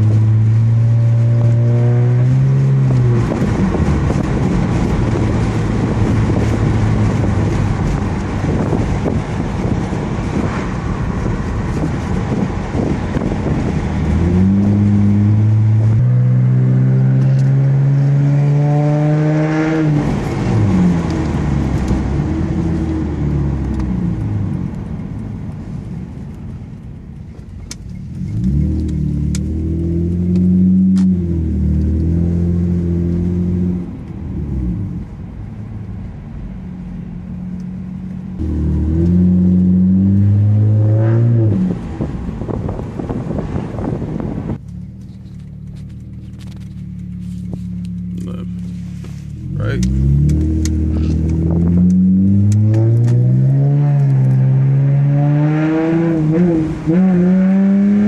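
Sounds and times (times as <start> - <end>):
car exhaust note accelerating: 0.0 - 24.7, 36.5 - 44.6, 45.6 - 58.0.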